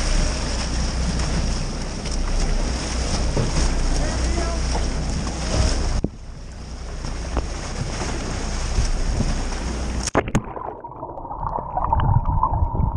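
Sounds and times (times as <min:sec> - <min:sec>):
sea water rushing: 0:00.0 - 0:12.9
wind buffeting microphone: 0:04.3 - 0:10.0, 0:11.7 - 0:12.9
underwater bubbling: 0:08.6 - 0:12.9.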